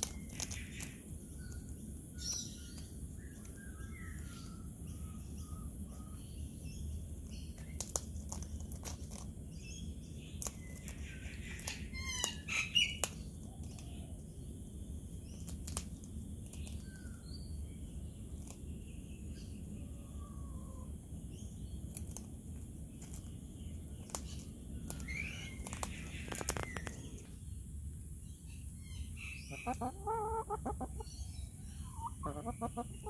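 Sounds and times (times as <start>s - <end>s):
beak crunching biscuit: 0.0s - 3.7s, 7.5s - 9.4s, 10.3s - 13.9s, 15.3s - 17.0s, 21.8s - 27.2s
distant bird chirps: 0.0s - 8.6s, 22.8s - 33.0s.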